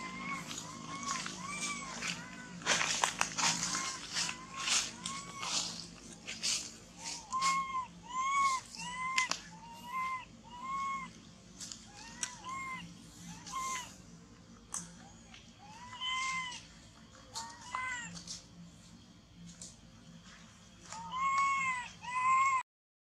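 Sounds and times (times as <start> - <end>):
baby monkey coo calls: 0.0 - 14.0, 14.7 - 16.7, 20.8 - 22.6.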